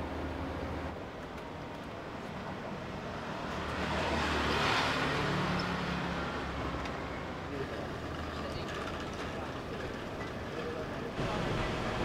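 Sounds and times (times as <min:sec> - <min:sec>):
road vehicle passing by: 0:03.1 - 0:09.8.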